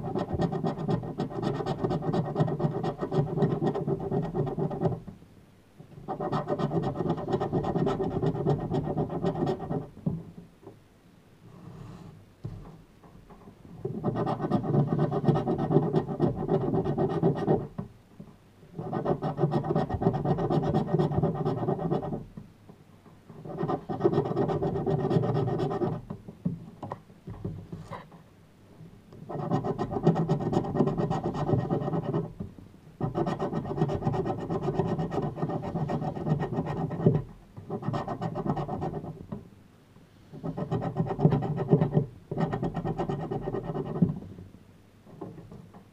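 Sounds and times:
scratching lottery ticket: 0.0s - 5.0s, 6.1s - 9.9s, 13.9s - 17.7s, 18.8s - 22.2s, 23.4s - 26.0s, 29.3s - 32.3s, 33.0s - 39.2s, 40.4s - 44.1s.

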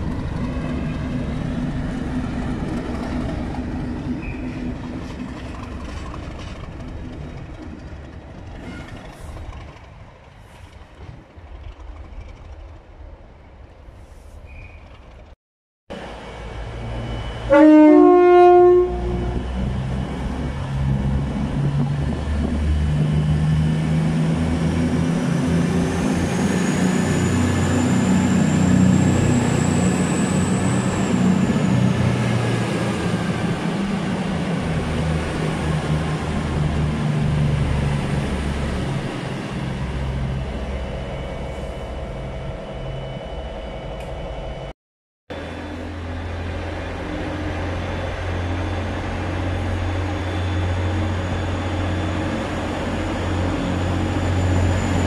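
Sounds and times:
diesel train engines passing: 0.0s - 44.7s, 45.3s - 55.0s
train horn blast: 17.5s - 19.5s.

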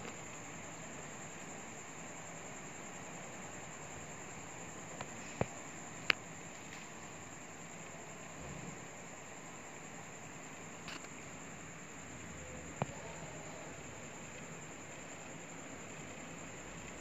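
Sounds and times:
background hiss: 0.0s - 17.0s
faint clicks: 5.0s - 6.9s, 10.8s - 11.3s.

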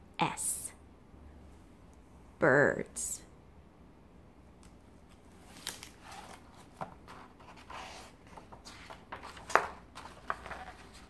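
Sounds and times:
book pages turning: 5.0s - 11.0s.

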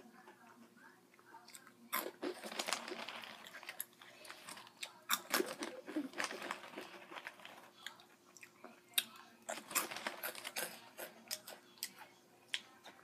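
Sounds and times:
plastic bag crinkling: 2.0s - 7.9s, 9.5s - 10.9s.

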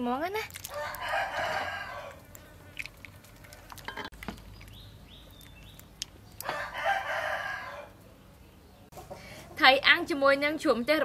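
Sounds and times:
rooster crowing: 0.7s - 2.2s, 6.4s - 8.0s.

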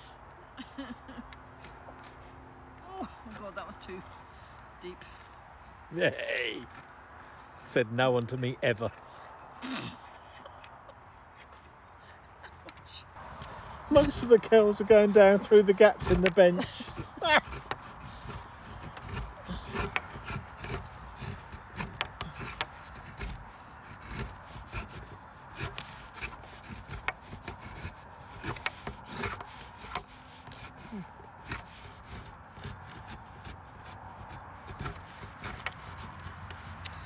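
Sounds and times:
knife scraping wood: 0.8s - 11.6s, 13.2s - 37.0s.

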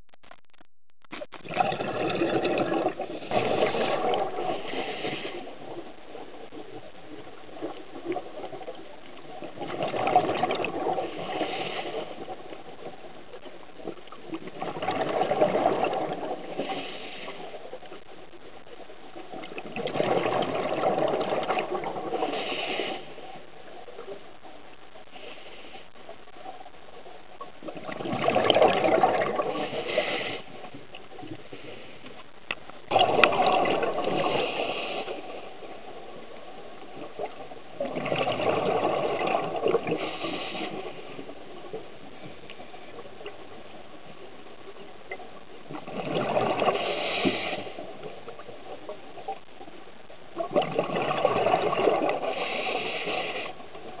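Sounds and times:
quiet hiss: 0.1s - 54.0s
underwater exhaled breath bubbling: 1.2s - 12.9s, 13.8s - 18.0s, 19.3s - 24.1s, 27.5s - 32.1s, 32.9s - 36.2s, 36.8s - 43.4s, 45.7s - 48.5s, 50.4s - 54.0s.

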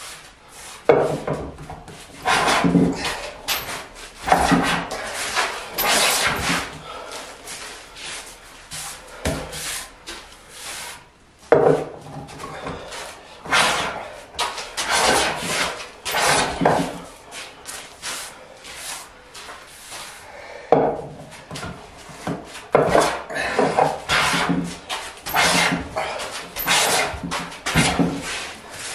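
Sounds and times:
hand plane shaving wood: 22.8s - 28.9s.

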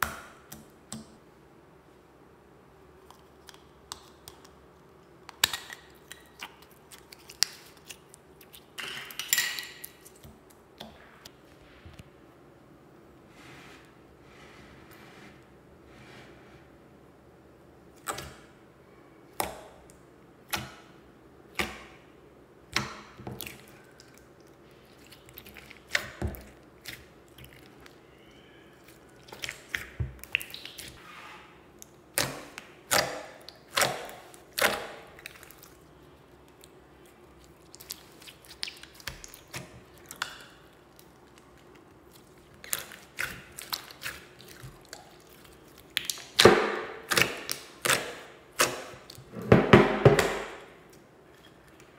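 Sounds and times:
slime squelching: 2.9s - 11.4s, 22.7s - 51.9s.

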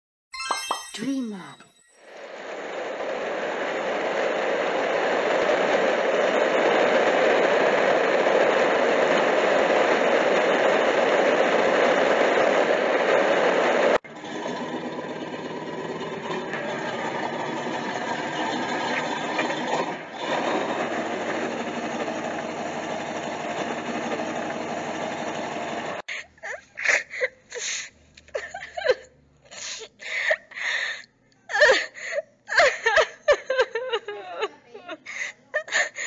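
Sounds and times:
steady rain: 2.4s - 14.0s.

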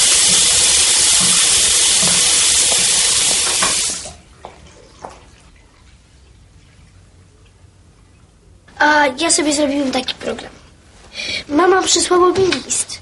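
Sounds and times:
water running into washbasin: 0.0s - 5.6s
faint water drips: 0.0s - 8.8s.

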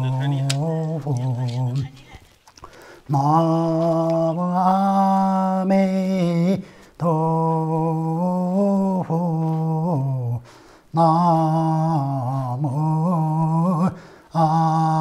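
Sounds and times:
person chanting in long notes: 0.0s - 2.0s, 11.0s - 15.0s.

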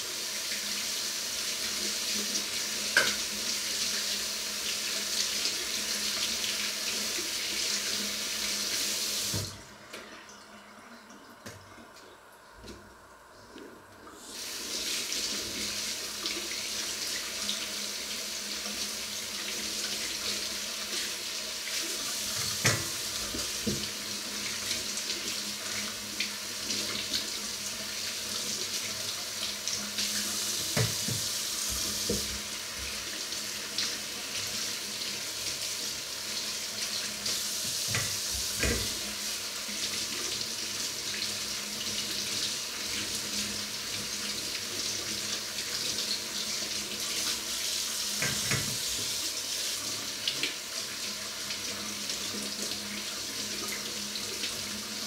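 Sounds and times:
tap running into metal sink: 2.9s - 3.3s, 9.3s - 10.0s, 22.3s - 24.0s, 30.6s - 33.0s, 37.6s - 39.0s, 48.2s - 49.1s.

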